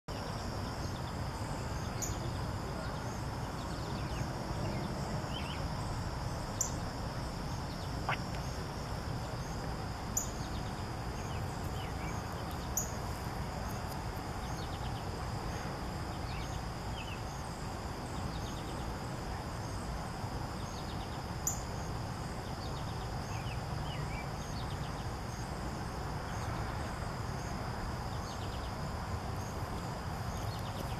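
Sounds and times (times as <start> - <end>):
high insect drone: 0.1 - 30.9.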